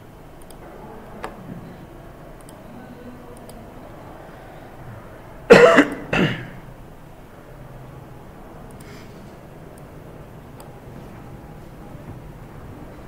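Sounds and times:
man coughing: 5.5 - 6.6.

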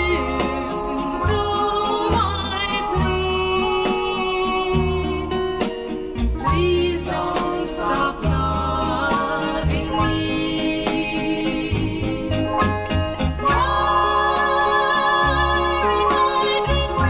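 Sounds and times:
pop ballad singing over a band: 6.4 - 12.8, 13.4 - 17.0.

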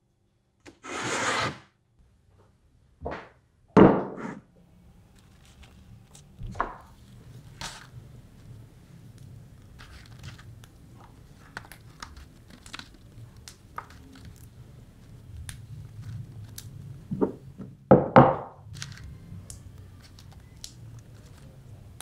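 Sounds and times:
chilli stems snapping: 18.8 - 21.4.

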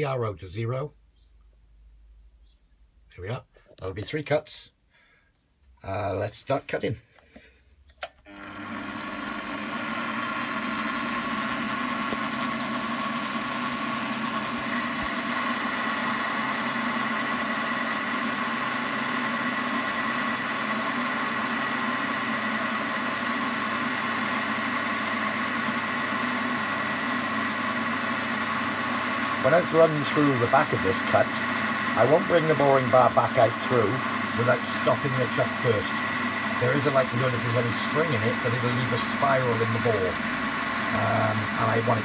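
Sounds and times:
metal lathe gear whine: 8.3 - 42.0
steady higher whine: 28.6 - 42.0.

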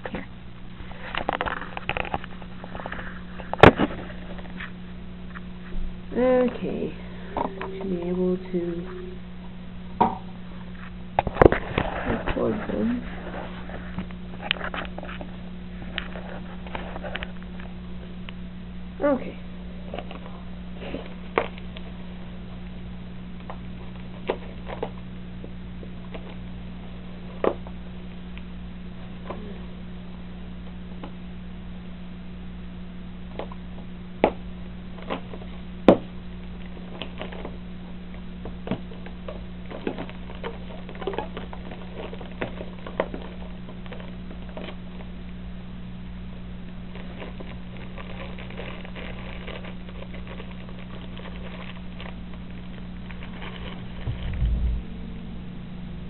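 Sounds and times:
faint crackle: 0.0 - 5.9, 10.5 - 18.5, 34.7 - 55.3
low electrical hum: 0.0 - 56.0.

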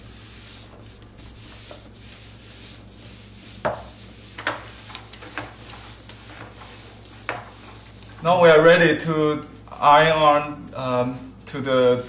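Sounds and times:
iron rubbing over paper: 0.0 - 8.8.

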